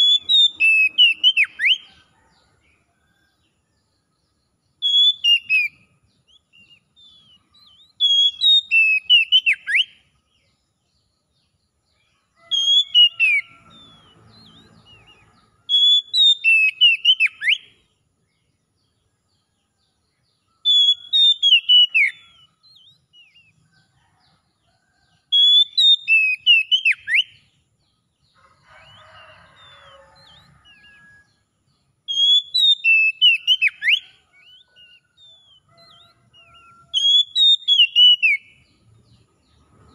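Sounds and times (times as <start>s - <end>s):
bird singing whistled phrases: 0.0s - 1.9s, 4.8s - 10.0s, 12.5s - 15.1s, 15.7s - 17.7s, 20.7s - 23.5s, 25.4s - 27.4s, 32.1s - 38.5s.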